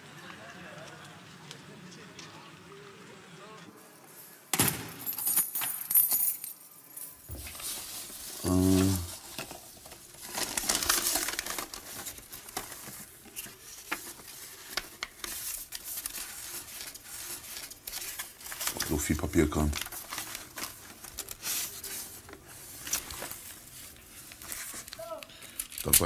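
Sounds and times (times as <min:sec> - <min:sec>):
rustling: 0:07.0 - 0:26.0.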